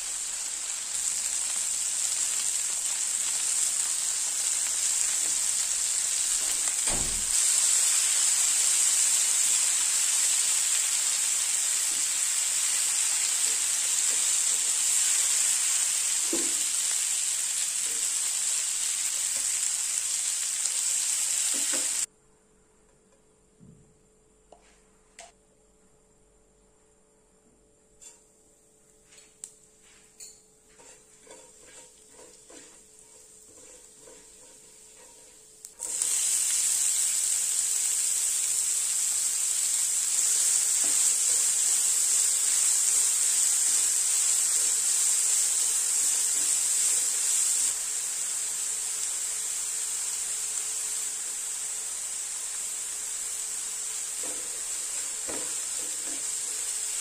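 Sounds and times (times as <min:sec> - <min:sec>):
food sizzling in hot oil: 0:00.0 - 0:22.1, 0:30.7 - 0:57.0.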